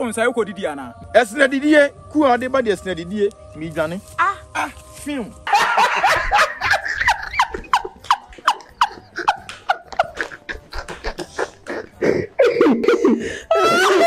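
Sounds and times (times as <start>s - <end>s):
person laughing hard: 5.5s - 14.0s.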